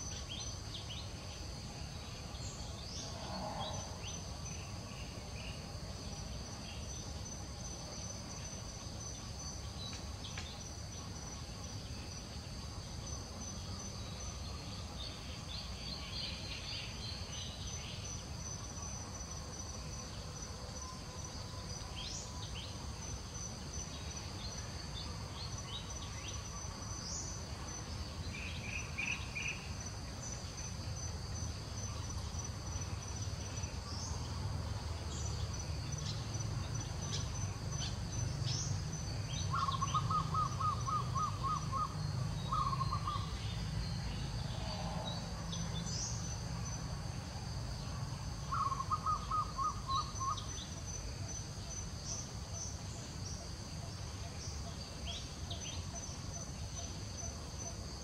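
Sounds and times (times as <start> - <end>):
insects trilling: 0.0 - 58.0.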